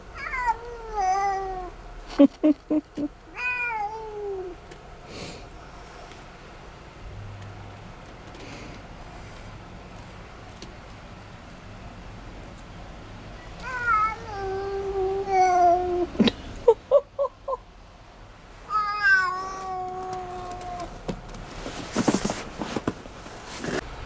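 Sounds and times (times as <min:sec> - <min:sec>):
cat meowing: 0:00.2 - 0:01.7, 0:03.4 - 0:04.6, 0:13.6 - 0:16.2, 0:18.7 - 0:20.9
scuffling or rustling: 0:19.4 - 0:23.9.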